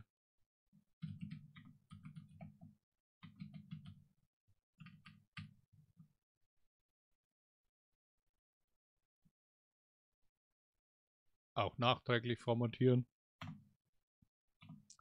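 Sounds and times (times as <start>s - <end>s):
keyboard typing: 1.0s - 4.0s.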